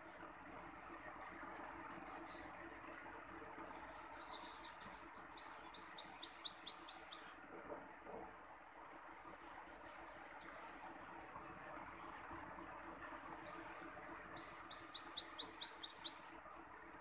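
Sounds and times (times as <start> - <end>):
warbler singing: 3.7 - 7.4, 9.2 - 11.0, 14.4 - 16.3.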